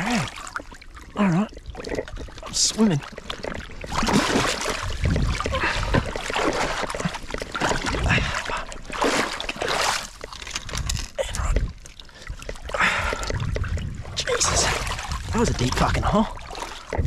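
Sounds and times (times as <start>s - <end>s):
low thuds of water: 0.0s - 17.0s
water splashing from swimming: 0.0s - 17.0s.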